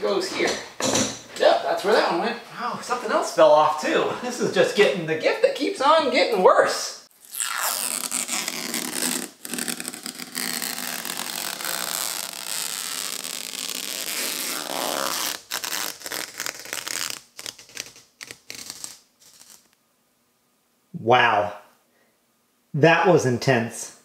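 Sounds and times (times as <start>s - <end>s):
plastic film peeling: 7.2s - 19.8s.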